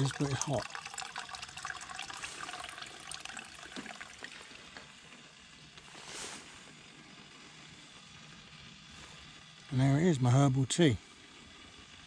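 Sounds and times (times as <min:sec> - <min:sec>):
hot water trickling into a mug: 0:00.0 - 0:06.0
brief hiss: 0:05.8 - 0:06.8.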